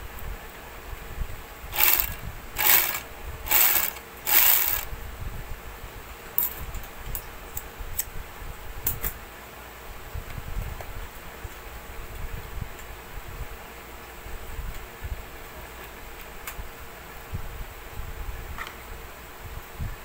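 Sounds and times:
overlock machine running: 0:01.7 - 0:04.9.

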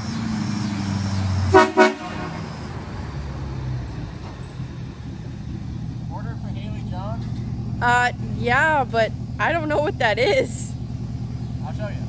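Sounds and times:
truck engine running: 0:00.0 - 0:12.0
pickup horn toots: 0:01.5 - 0:02.9.

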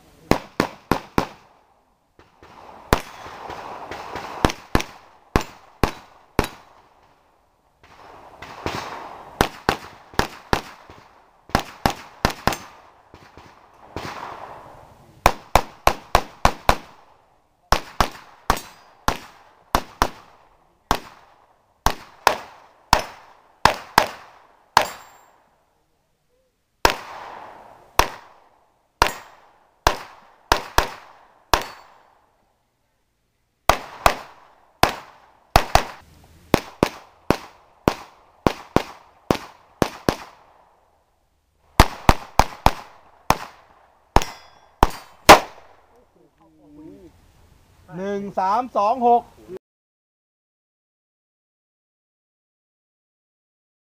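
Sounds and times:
pistol shots: 0:00.3 - 0:01.6, 0:02.4 - 0:07.2, 0:07.8 - 0:14.5, 0:15.2 - 0:25.4, 0:26.8 - 0:32.2, 0:33.7 - 0:40.7, 0:41.8 - 0:45.9.

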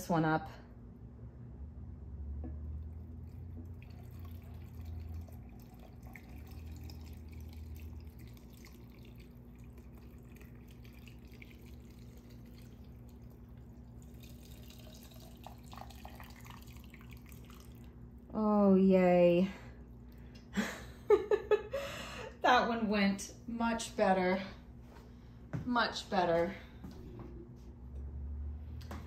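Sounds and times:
syrup trickling into jar: 0:02.8 - 0:18.0.

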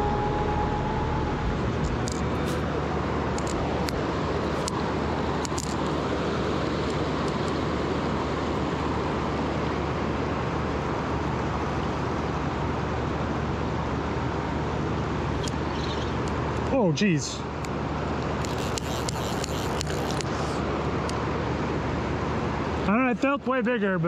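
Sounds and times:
faint clicks: 0:17.6 - 0:20.4.

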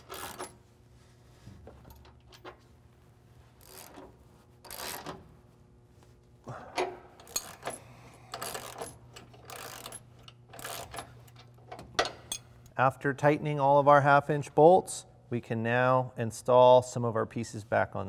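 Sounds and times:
ratchet pawl clicking: 0:04.7 - 0:05.0, 0:08.3 - 0:10.0, 0:10.6 - 0:11.0
metal clinks: 0:07.2 - 0:10.9.

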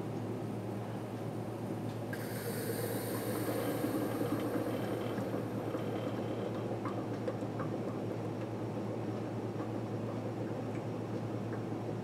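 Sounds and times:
air hissing and gurgling through filter: 0:02.1 - 0:07.7.

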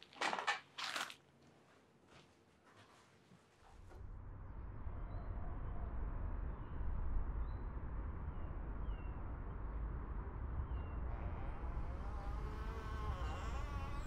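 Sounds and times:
low ambient rumble: 0:03.6 - 0:14.0
wavering tones: 0:04.7 - 0:14.0.

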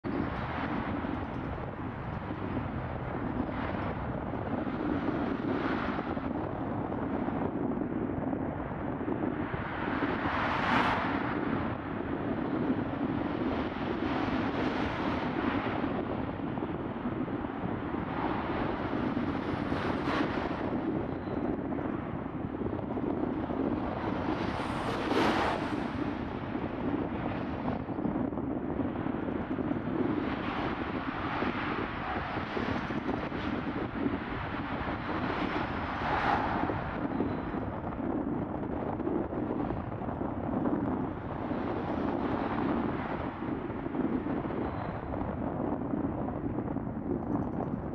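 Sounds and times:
low engine-like drone: 0:11.1 - 0:47.9.

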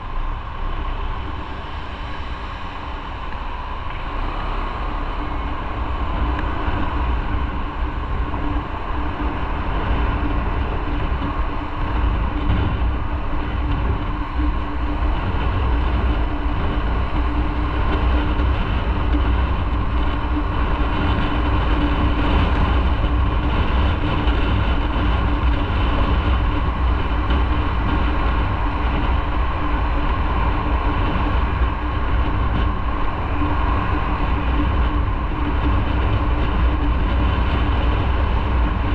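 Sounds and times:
motorcycle engine drone: 0:00.0 - 0:38.9.

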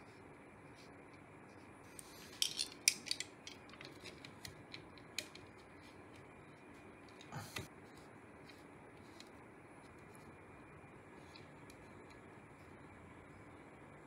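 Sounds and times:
small plastic and metal parts clicking: 0:02.3 - 0:05.5.

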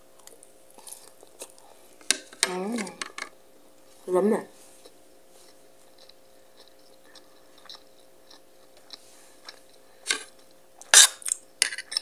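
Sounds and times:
person chewing food: 0:00.0 - 0:02.1, 0:04.7 - 0:12.0.

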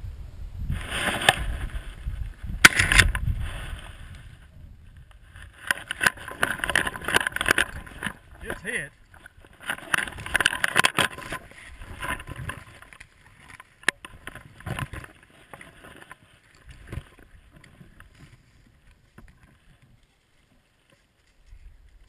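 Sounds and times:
sharp crack: 0:02.5 - 0:03.5.

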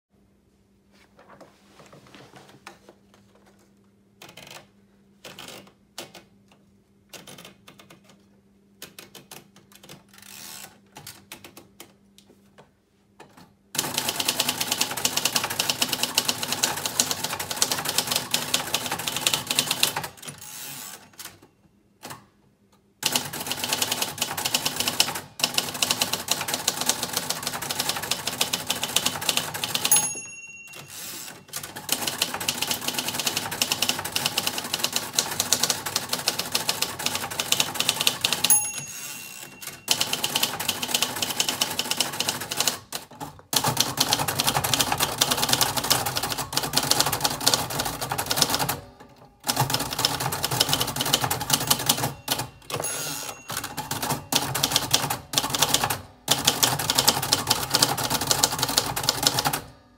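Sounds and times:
fast typewriter typing: 0:07.2 - 0:08.1, 0:13.8 - 0:21.4, 0:23.0 - 0:48.8, 0:49.4 - 0:59.7
typewriter margin bell: 0:13.9 - 0:21.4, 0:23.3 - 0:42.7, 0:49.5 - 0:59.6.

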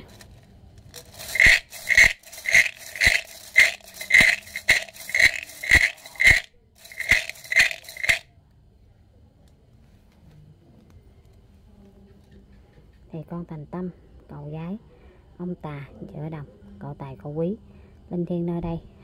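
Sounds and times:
sticks rattling in a cylinder: 0:00.0 - 0:08.3.

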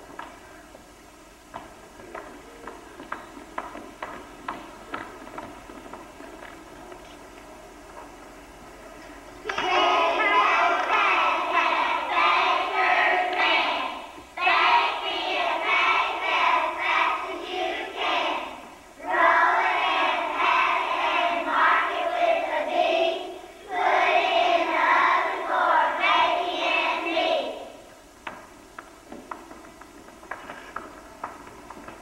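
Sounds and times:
children singing in unison: 0:09.4 - 0:27.8.

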